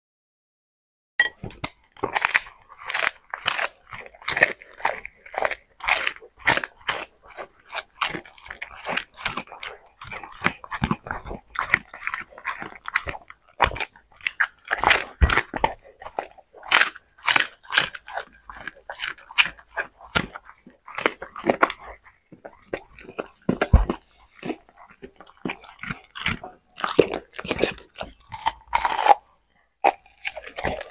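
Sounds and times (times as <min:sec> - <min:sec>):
dog chewing food: 0:01.4 - 0:30.9.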